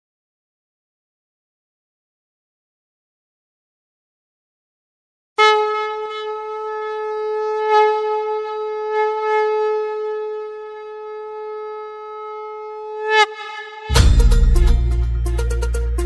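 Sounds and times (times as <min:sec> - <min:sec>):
conch shell blown: 0:05.4 - 0:16.0.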